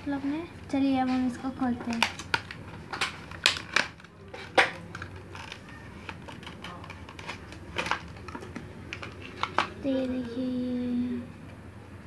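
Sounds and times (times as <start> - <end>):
plastic packaging clicks and crackles: 1.1 - 10.3.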